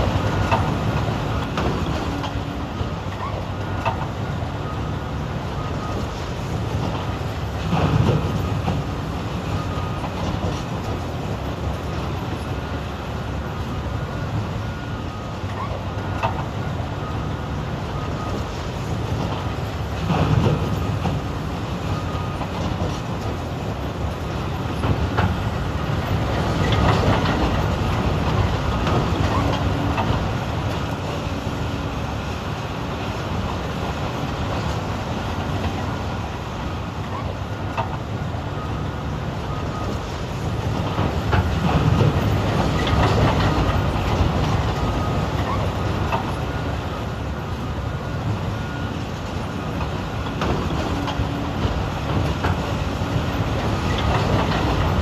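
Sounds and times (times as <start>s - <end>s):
heavy diesel engines under load: 0.0s - 55.0s.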